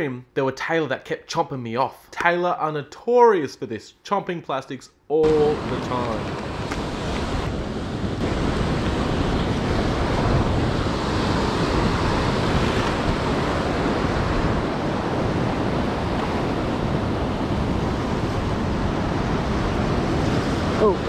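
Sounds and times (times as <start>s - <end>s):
ocean surf around rocks: 5.2s - 21.0s.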